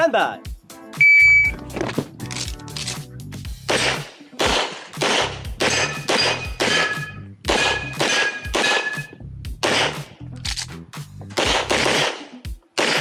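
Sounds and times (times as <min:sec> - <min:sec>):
pistol shots: 0:03.7 - 0:10.1, 0:11.4 - 0:13.0.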